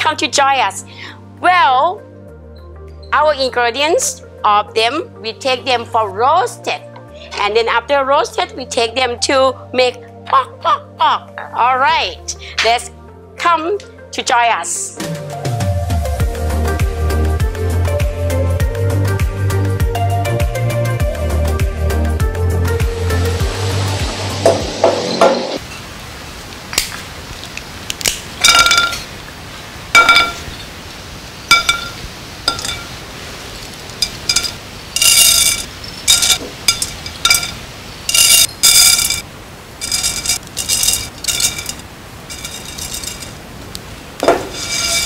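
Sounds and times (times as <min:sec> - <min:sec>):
pan clinking on burner grate: 0:28.4 - 0:29.1, 0:30.0 - 0:30.6, 0:31.5 - 0:33.0, 0:34.0 - 0:39.2, 0:39.8 - 0:43.4, 0:44.4 - 0:45.0.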